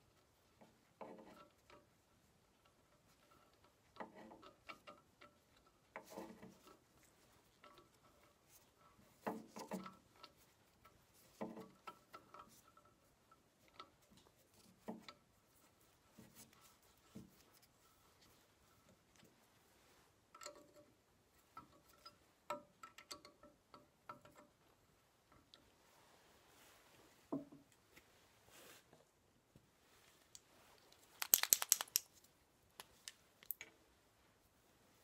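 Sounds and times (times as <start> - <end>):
small metal parts clinking: 31.2 - 32.1.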